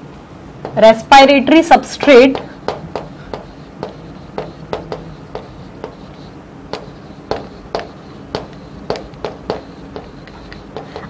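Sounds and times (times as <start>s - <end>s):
chalk tapping on chalkboard: 2.2s - 11.0s.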